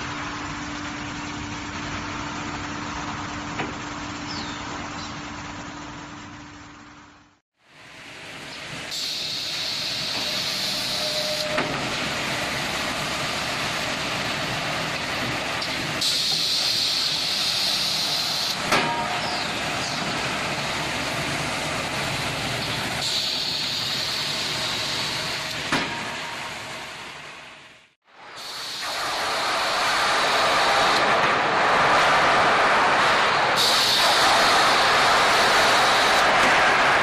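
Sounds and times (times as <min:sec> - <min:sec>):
machine running: 0:07.8 - 0:37.0
high hiss: 0:08.9 - 0:11.6, 0:28.1 - 0:36.4.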